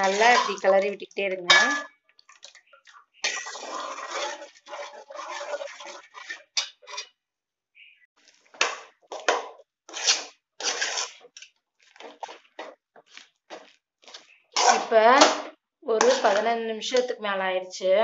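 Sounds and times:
ladle scraping a metal pot: 0.0s - 2.6s, 3.2s - 7.2s, 8.6s - 12.7s, 14.0s - 15.4s, 16.0s - 16.5s.

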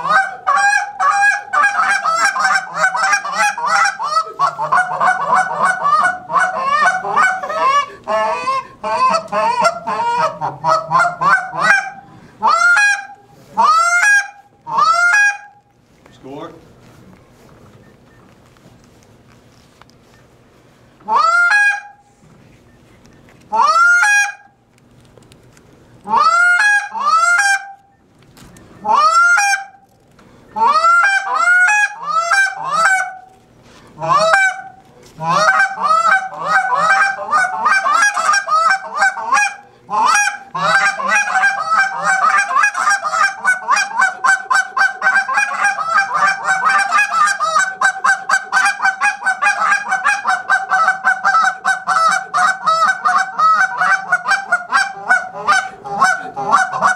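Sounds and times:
rapid clucks and chatter: 0.0s - 15.4s, 34.0s - 56.9s
goose call honks: 0.0s - 15.6s, 21.1s - 22.0s, 23.5s - 24.5s, 26.1s - 27.8s, 28.8s - 29.8s, 30.6s - 33.2s, 34.0s - 56.9s.

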